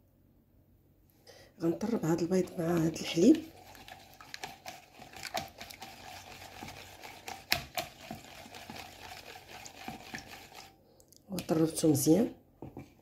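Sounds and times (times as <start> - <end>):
whisk clicking against bowl: 1.8 - 10.7.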